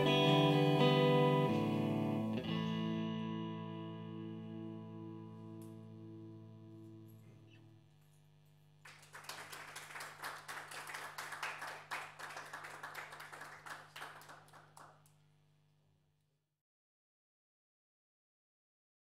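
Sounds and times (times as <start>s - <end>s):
electric guitar chord ringing: 0.0s - 7.5s
audience applause: 8.9s - 15.0s.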